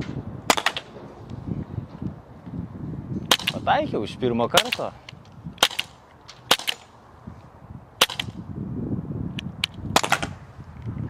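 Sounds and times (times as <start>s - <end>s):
pistol shots: 0.5s - 0.9s, 3.3s - 3.6s, 4.5s - 4.9s, 5.6s - 6.9s, 8.0s - 8.4s
pistol clicks: 4.6s - 6.9s, 8.0s - 8.4s.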